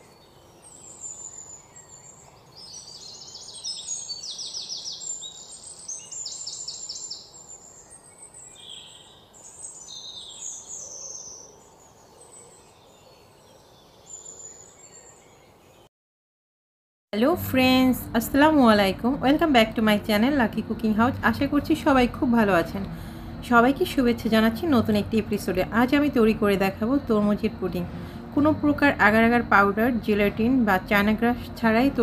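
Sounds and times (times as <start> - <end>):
birds chirping and singing: 0.1 - 15.9.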